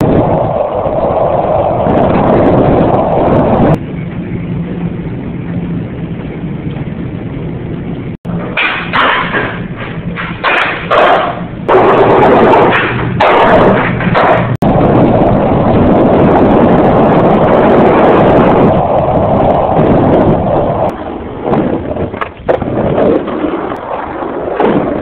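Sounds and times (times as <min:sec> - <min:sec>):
skateboard wheels rolling on concrete: 0:00.0 - 0:25.0
skateboard clacks: 0:08.4 - 0:14.6, 0:21.4 - 0:25.0.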